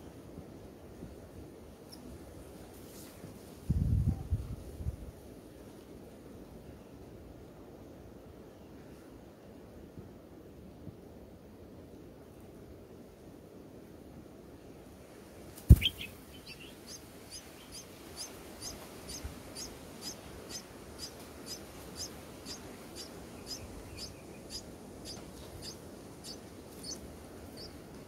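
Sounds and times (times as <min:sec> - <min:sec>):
sharp thump: 0:15.7 - 0:16.0
nestlings cheeping: 0:15.7 - 0:27.8.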